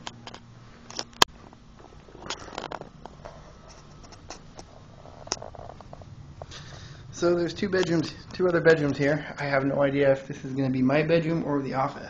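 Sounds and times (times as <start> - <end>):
phone rustling while walking: 0.0 - 6.8.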